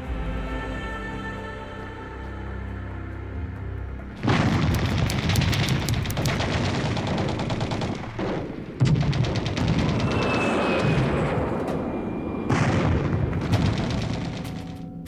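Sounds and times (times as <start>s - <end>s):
background music: 0.0s - 8.8s
rapid gunfire and booms: 4.2s - 15.0s.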